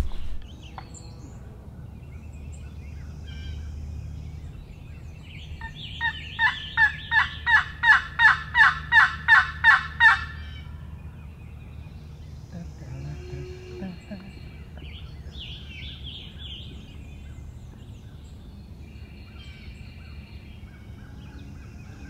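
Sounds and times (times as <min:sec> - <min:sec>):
turkey yelps: 0:05.6 - 0:10.7.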